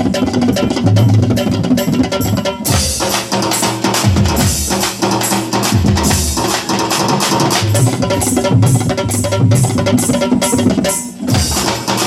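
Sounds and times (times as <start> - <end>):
tabla and dholak drumming: 0.0 - 12.0
electronic keyboard bass line: 7.6 - 9.6.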